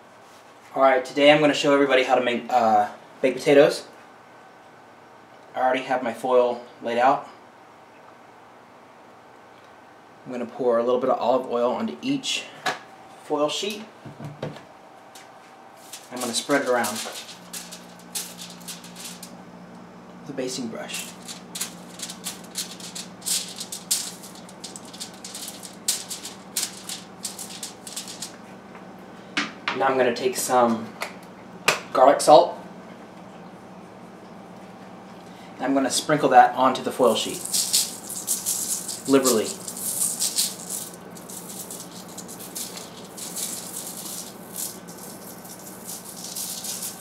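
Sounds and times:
salt rattling in plastic shaker: 15.8s - 19.3s, 20.8s - 28.4s, 37.1s - 47.0s
aluminium foil crinkling: 15.8s - 19.4s, 20.8s - 28.4s, 37.1s - 47.0s.

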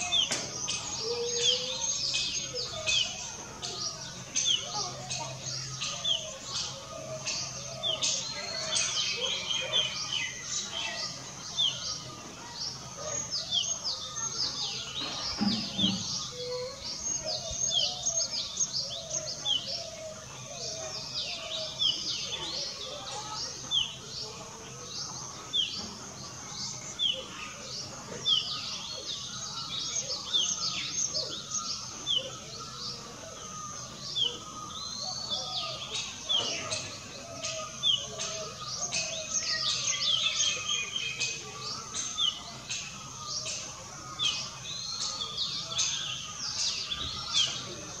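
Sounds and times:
birds chirping: 0.0s - 48.0s.

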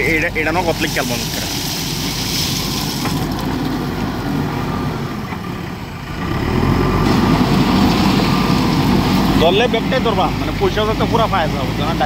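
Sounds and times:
diesel engine running: 0.0s - 12.0s
gravel pouring from bucket: 0.1s - 4.0s.

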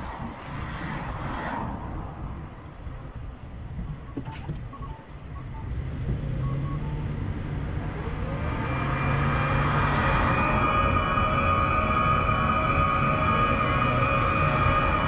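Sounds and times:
traffic rumble: 0.0s - 15.0s
short electronic beeps: 4.0s - 9.4s
rising wash of noise with whining: 5.5s - 15.0s.

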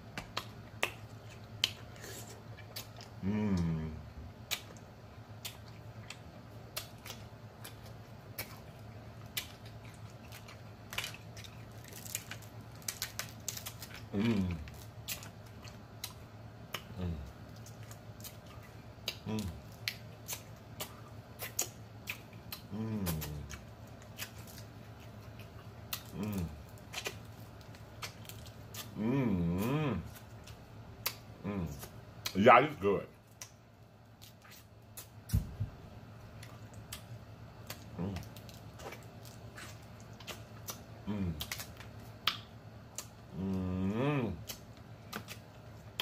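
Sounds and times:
person humming mmm: 3.2s - 4.2s, 14.1s - 14.8s, 16.8s - 17.3s, 19.1s - 19.6s, 22.5s - 23.6s, 26.0s - 26.6s, 28.8s - 30.2s, 31.4s - 31.9s, 37.9s - 38.3s, 41.0s - 41.6s, 43.3s - 44.6s
wet smacking mouth sounds: 13.1s - 27.3s, 36.4s - 43.5s, 44.3s - 46.0s.

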